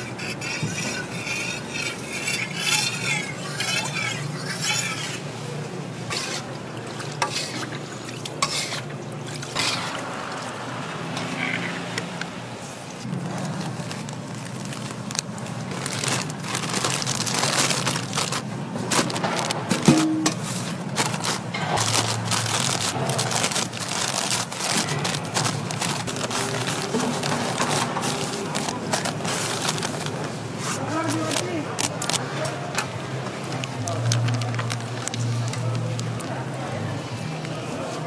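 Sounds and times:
metal spatula scraping pan: 0.0s - 5.4s, 6.1s - 6.5s, 7.2s - 7.8s, 8.4s - 8.9s, 9.5s - 10.0s.

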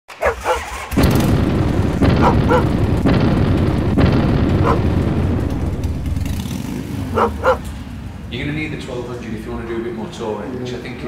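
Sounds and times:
dog barking: 0.1s - 0.8s, 2.1s - 2.7s, 4.6s - 4.8s, 7.1s - 7.6s
loud deep engine rumble: 0.2s - 11.0s.

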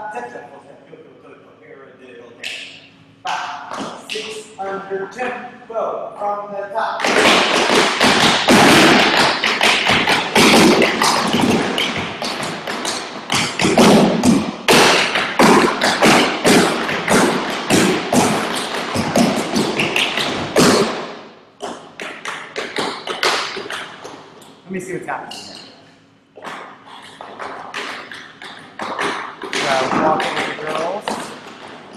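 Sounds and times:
tap dancing on wooden boards: 7.0s - 24.2s, 26.4s - 31.9s.

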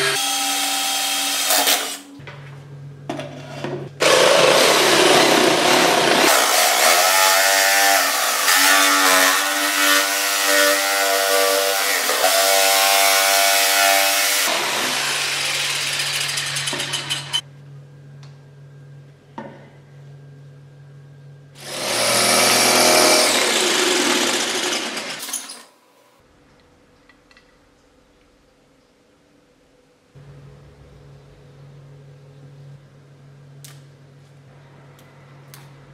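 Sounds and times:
jigsaw cutting wood: 4.0s - 10.8s, 11.4s - 17.4s, 21.6s - 25.3s.

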